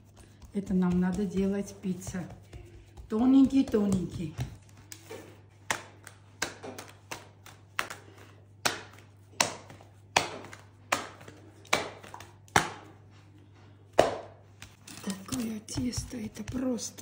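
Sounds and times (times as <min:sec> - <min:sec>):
dough slapped between hands: 0:00.4 - 0:13.0, 0:13.9 - 0:14.8.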